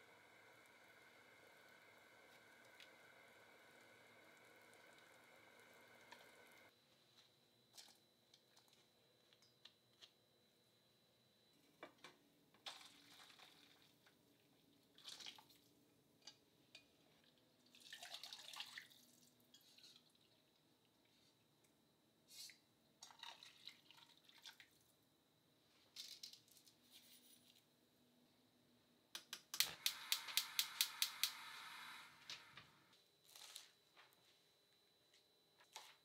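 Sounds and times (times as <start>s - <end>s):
pot simmering: 0.0s - 6.7s
liquid pouring and splashing: 17.7s - 20.3s.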